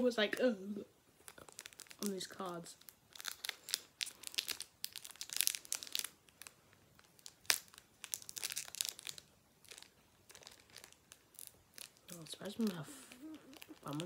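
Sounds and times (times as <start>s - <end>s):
foil wrapper crinkling: 1.2s - 14.0s.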